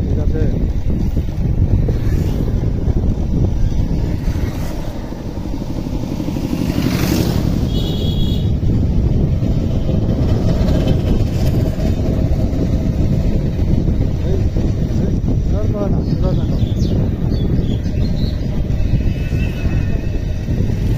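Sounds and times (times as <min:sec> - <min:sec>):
motorcycle engine riding: 0:00.0 - 0:20.9.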